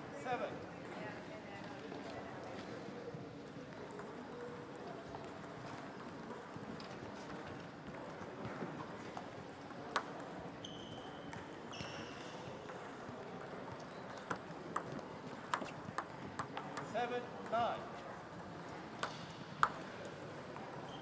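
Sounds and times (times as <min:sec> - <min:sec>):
ping pong ball clicks: 0:03.4 - 0:04.5, 0:05.2 - 0:08.2, 0:09.1 - 0:12.0, 0:12.6 - 0:17.6, 0:18.3 - 0:20.9.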